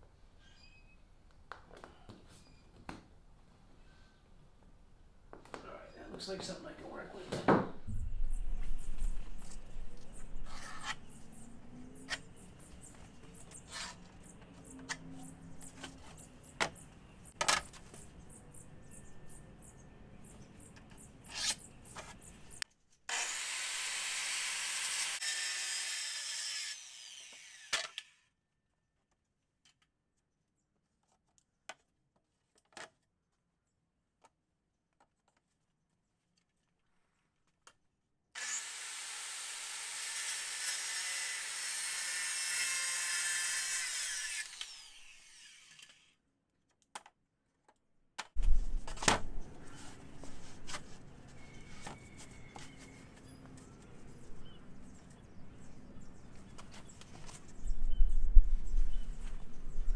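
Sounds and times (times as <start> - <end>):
power saw cutting plywood: 23.1 - 28.2, 38.4 - 46.1.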